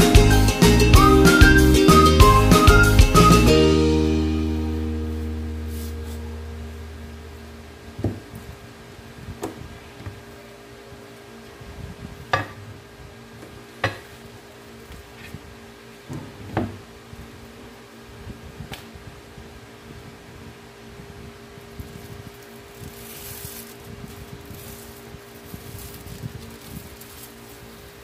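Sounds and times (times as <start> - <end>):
background music: 0.0 - 7.0
faint steady hum: 3.6 - 28.0.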